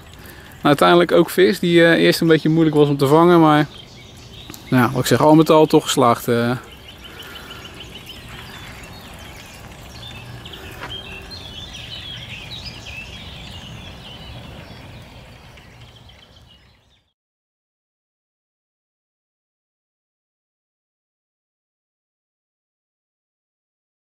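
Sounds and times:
small birds chirping: 0.0s - 17.2s.

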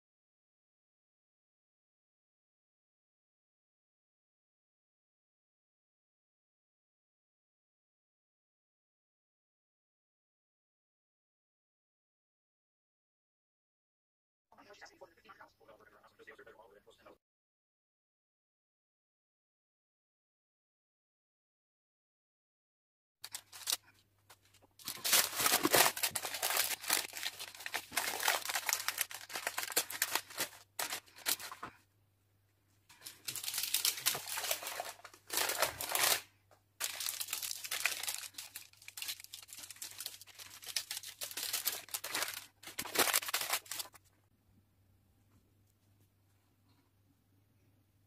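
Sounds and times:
parchment paper crinkling: 23.2s - 31.8s, 32.9s - 44.1s.

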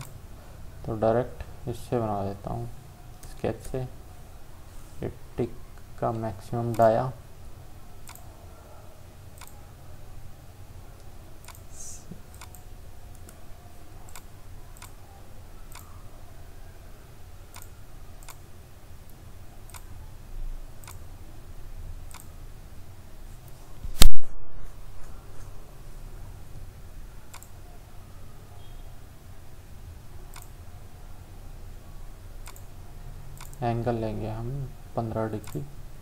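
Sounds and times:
faint low hum: 0.0s - 36.0s
computer mouse clicks: 8.0s - 8.3s, 9.4s - 9.6s, 11.4s - 13.4s, 14.1s - 15.0s, 17.5s - 18.4s, 20.8s - 21.0s, 22.1s - 22.4s, 27.3s - 27.6s, 30.3s - 30.6s, 32.4s - 32.7s, 33.4s - 33.6s, 35.4s - 35.7s
loud sharp pop: 24.0s - 24.4s.

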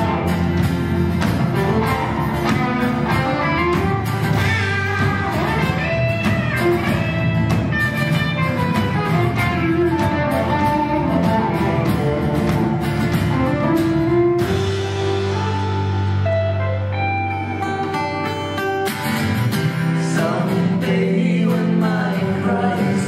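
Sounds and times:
bass guitar: 0.0s - 23.0s
drums: 0.0s - 23.0s
strummed acoustic guitars: 0.0s - 23.0s.

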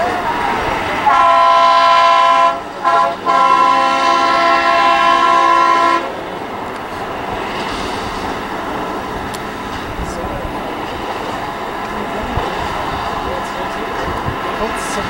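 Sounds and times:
train running: 0.0s - 15.0s
steam locomotive whistle: 0.9s - 6.2s.

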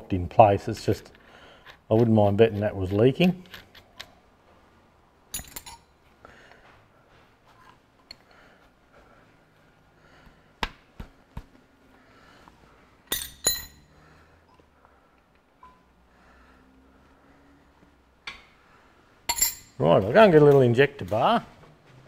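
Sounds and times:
metal tools clinking: 5.3s - 6.0s, 13.1s - 13.9s, 19.3s - 19.8s.

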